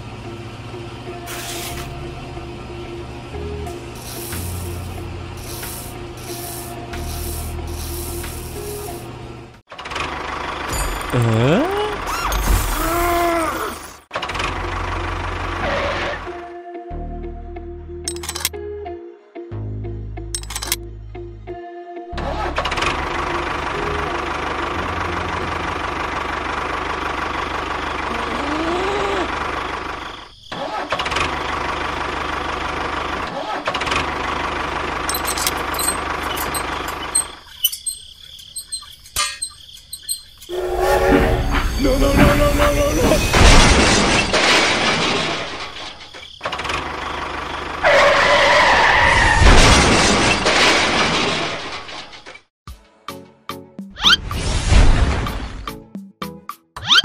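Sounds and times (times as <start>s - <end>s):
tractor engine running: 1.8s - 12.8s, 13.8s - 15.9s, 20.4s - 20.8s, 22.3s - 40.6s, 44.4s - 48.4s
held squealing tone: 35.1s - 43.4s
vehicle crash with shattering: 41.0s - 52.5s.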